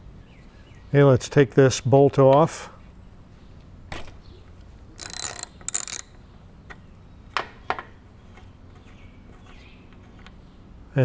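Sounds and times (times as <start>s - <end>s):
ratchet wrench clicking: 5.0s - 6.2s.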